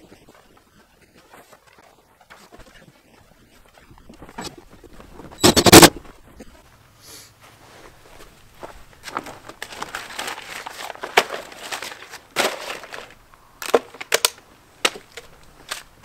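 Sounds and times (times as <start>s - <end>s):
paper bags crinkling and crumpling: 9.0s - 16.0s.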